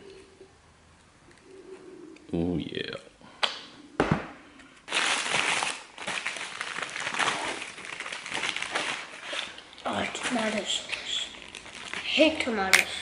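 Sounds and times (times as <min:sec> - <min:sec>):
paper bag crinkling: 0:04.9 - 0:09.3.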